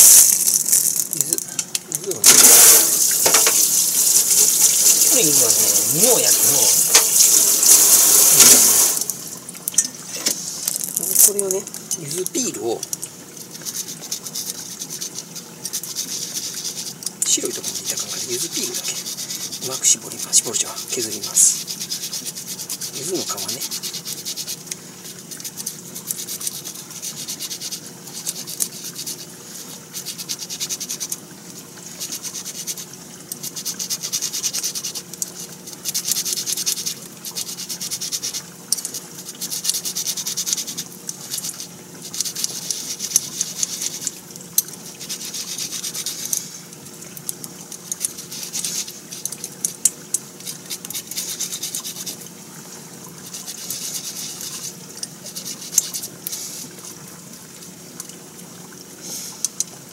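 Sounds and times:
citrus rind rasping on grater: 0.0 - 9.2, 13.6 - 24.7, 25.3 - 31.1, 35.8 - 44.2, 44.9 - 46.5, 50.4 - 52.2, 53.2 - 56.4.

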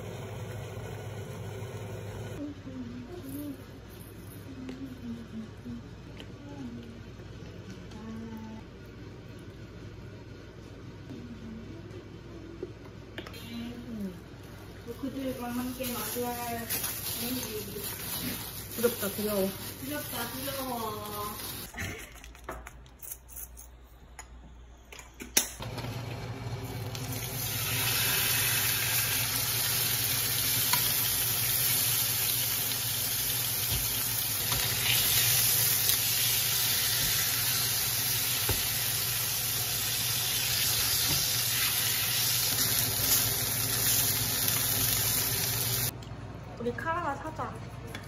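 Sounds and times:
steak sizzling in a frying pan: 27.0 - 45.9.

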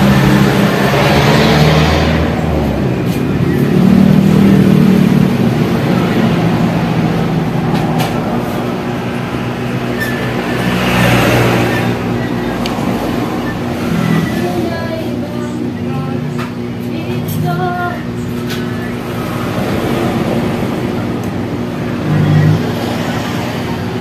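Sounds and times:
highway traffic passing: 0.0 - 24.0.

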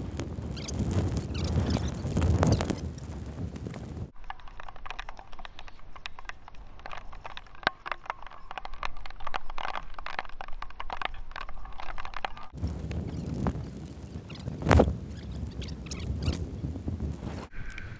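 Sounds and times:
wind rumble on microphone: 0.0 - 4.2, 12.6 - 17.9
rain drops tapping on camera housing: 0.0 - 17.5.

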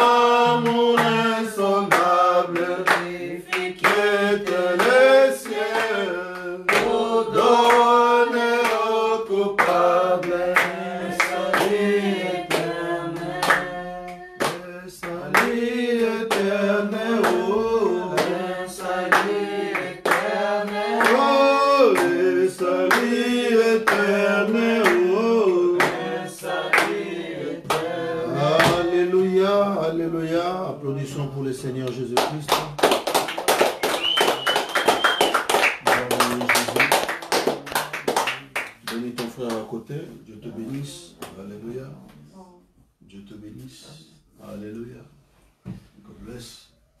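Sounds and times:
hand clapping: 0.0 - 1.2, 1.9 - 7.0, 8.6 - 8.8, 9.6 - 11.8, 12.5 - 15.6, 17.2 - 17.4, 19.1 - 22.2, 22.9 - 23.2, 23.9 - 24.1, 24.8 - 25.1, 25.8 - 26.1, 26.7 - 27.0, 28.6 - 28.8, 31.8 - 39.7
voices singing a hymn: 0.0 - 30.7.

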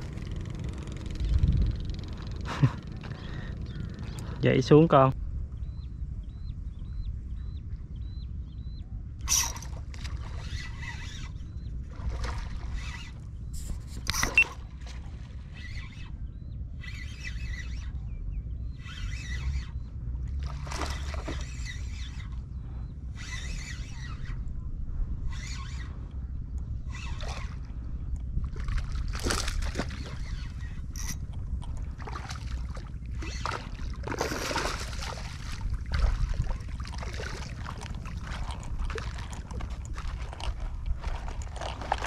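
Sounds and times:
wind on microphone: 0.0 - 4.4, 5.2 - 42.0
spinning reel cranking: 9.3 - 11.4, 15.4 - 16.1, 16.8 - 18.0, 18.8 - 19.8, 23.2 - 24.4, 25.3 - 25.9, 26.8 - 27.5, 30.0 - 31.3.

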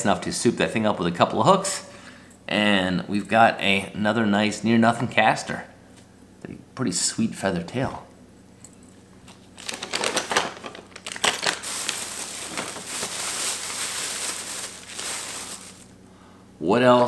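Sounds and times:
plastic bag crinkling and rustling: 9.6 - 16.0.

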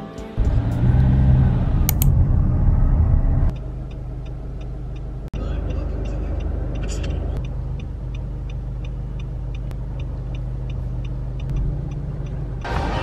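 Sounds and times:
car engine humming: 0.4 - 13.0
turn signal ticking: 3.5 - 12.8.

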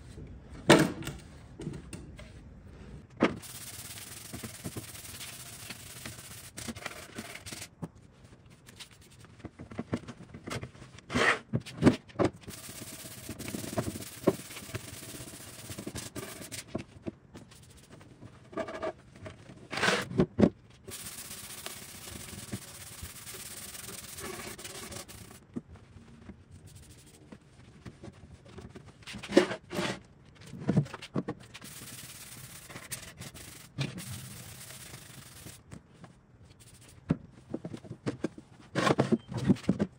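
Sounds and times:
hand rubbing wood: 3.4 - 7.7, 12.5 - 16.6, 20.9 - 25.4, 26.6 - 27.2, 31.6 - 35.6, 36.6 - 37.0.

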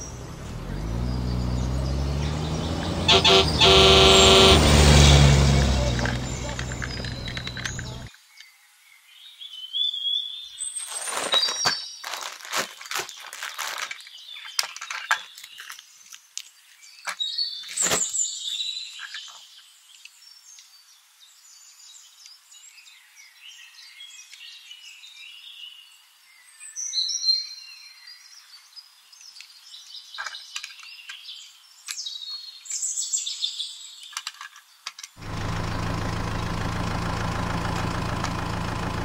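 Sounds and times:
plastic toy clicks and rattles: 13.6 - 16.5, 34.1 - 35.2.

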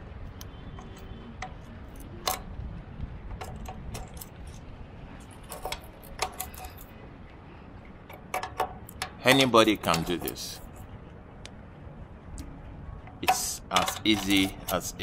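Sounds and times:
metal hand tool clicking: 8.1 - 10.7, 13.2 - 15.0.

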